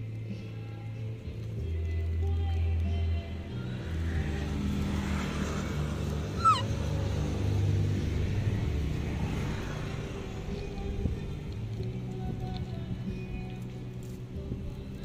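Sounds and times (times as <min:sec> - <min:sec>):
baby monkey squeak: 0:06.2 - 0:07.0.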